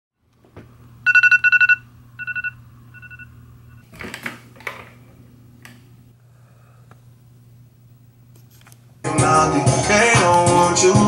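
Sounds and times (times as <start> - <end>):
high electronic beeps: 1.1 - 3.3.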